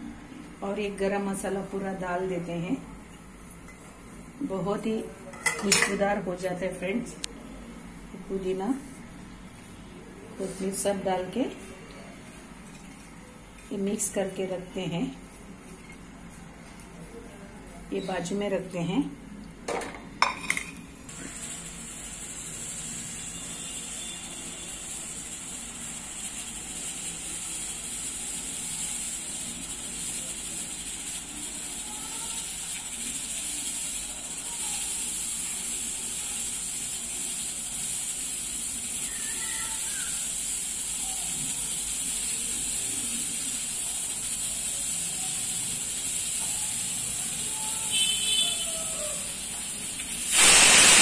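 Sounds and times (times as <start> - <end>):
pressure cooker steam hissing: 21.1 - 51.0.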